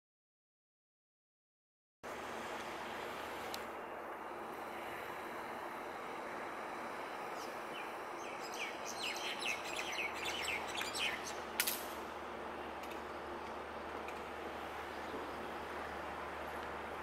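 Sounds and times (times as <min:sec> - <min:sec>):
outdoor background noise: 0:02.0 - 0:17.0
birds chirping: 0:03.7 - 0:17.0.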